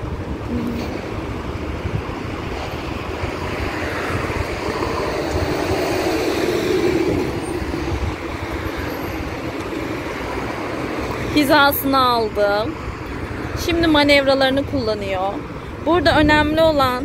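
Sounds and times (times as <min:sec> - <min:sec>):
gusty low rumble: 0:00.0 - 0:11.0
traffic noise: 0:00.0 - 0:17.0.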